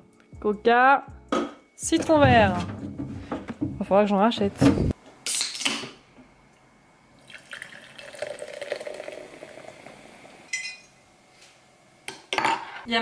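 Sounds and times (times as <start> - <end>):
cola fizzing as poured: 7.2 - 10.1.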